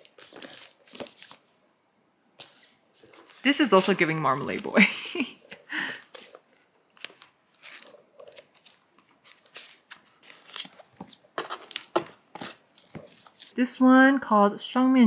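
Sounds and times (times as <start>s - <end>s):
pages riffling: 0.0s - 1.4s, 6.0s - 13.6s
paper rustling: 0.0s - 1.5s, 2.4s - 13.6s.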